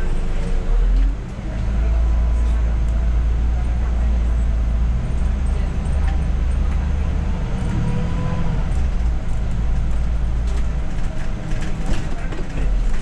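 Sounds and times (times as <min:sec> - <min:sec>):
bus engine and road rumble: 0:00.0 - 0:13.0
bus fittings clicking and rattling: 0:09.0 - 0:13.0.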